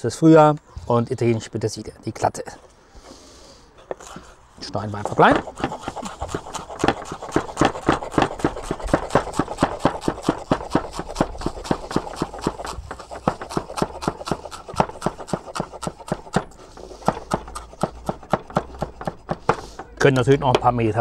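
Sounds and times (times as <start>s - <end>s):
knife chopping on wooden board: 4.9s - 20.8s.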